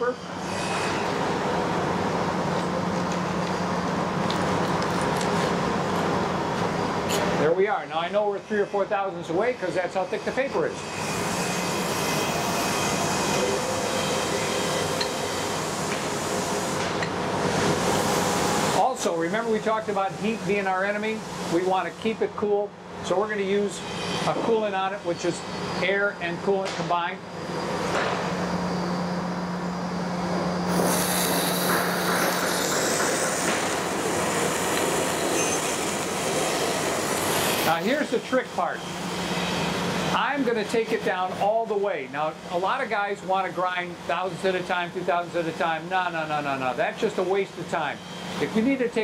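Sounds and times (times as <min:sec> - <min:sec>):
surface grinder whirring: 0:10.9 - 0:16.8, 0:30.1 - 0:38.2
hiss of air and coolant mist: 0:11.0 - 0:22.1, 0:30.6 - 0:38.3.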